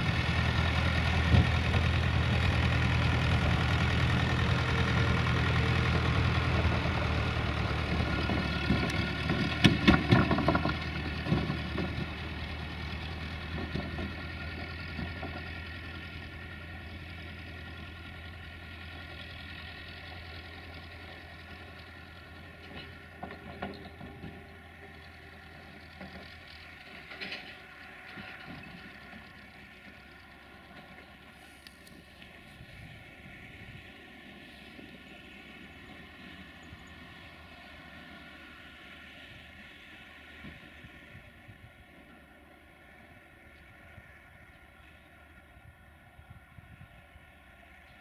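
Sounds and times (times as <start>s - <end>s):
trailer rattling over rails: 0.0s - 31.4s
tractor diesel engine running: 0.0s - 48.0s.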